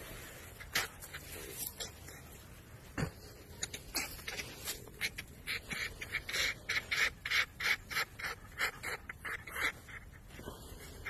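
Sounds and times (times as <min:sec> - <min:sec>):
fox huffing: 0:02.9 - 0:11.0.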